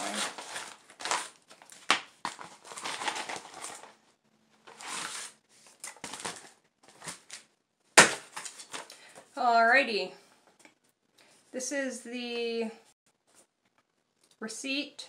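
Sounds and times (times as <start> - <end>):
metallic bubble mailer crinkling: 0.0 - 4.0.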